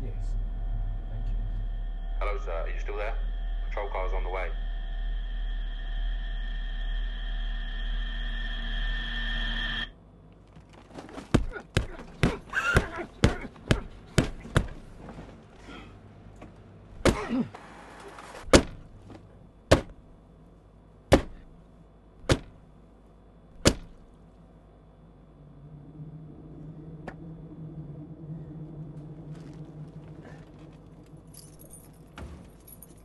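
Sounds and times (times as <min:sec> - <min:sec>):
steady hum: 0:00.0 - 0:33.0
sharp heavy thuds: 0:21.1 - 0:21.5, 0:23.6 - 0:24.1.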